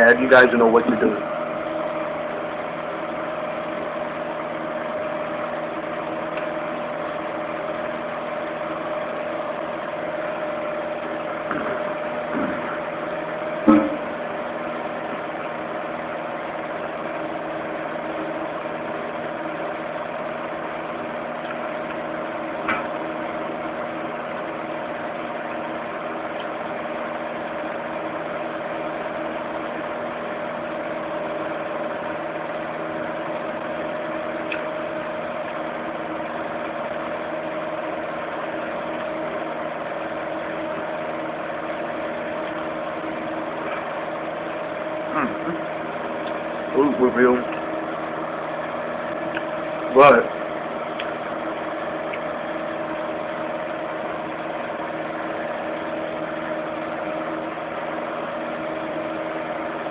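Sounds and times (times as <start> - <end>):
fan heater motor hum: 0.0 - 59.9.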